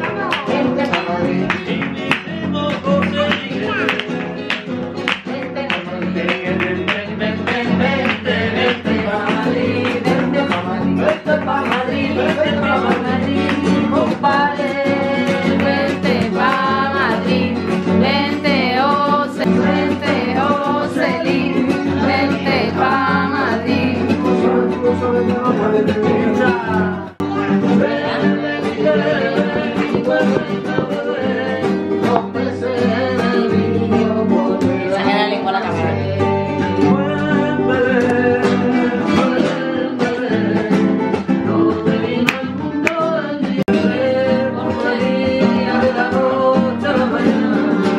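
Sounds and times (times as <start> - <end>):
man singing flamenco: 0.0 - 47.9
strummed guitar: 0.0 - 47.9.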